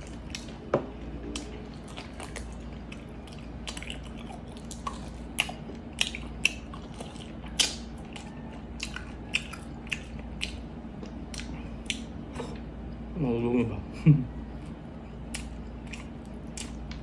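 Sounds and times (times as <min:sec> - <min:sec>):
wet chewing mouth smacks: 0:15.3 - 0:17.0.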